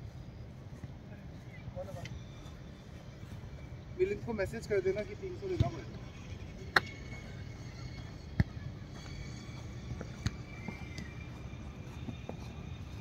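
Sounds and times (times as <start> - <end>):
boot kicking football: 5.5 - 5.9, 7.9 - 13.0.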